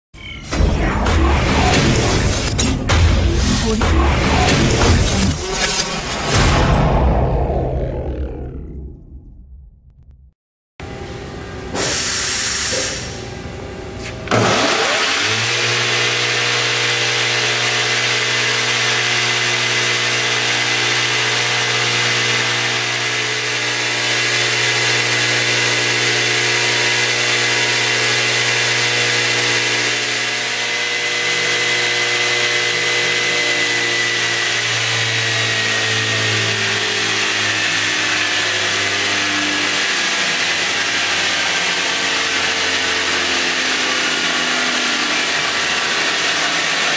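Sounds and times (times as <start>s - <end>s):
belt grinder running: 14.3s - 46.9s.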